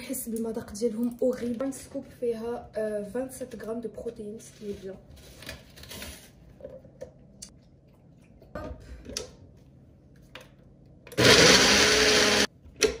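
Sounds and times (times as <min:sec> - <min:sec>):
blender running: 0:11.1 - 0:12.5.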